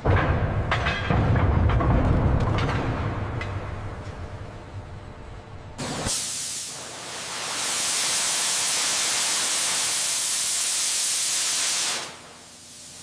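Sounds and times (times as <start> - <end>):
cutting head hissing through steel: 5.8 - 13.0.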